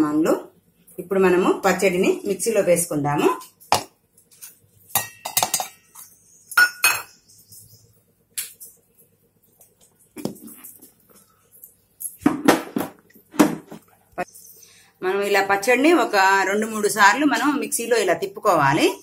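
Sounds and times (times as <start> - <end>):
steel jar and bowls clinking: 4.9 - 7.1.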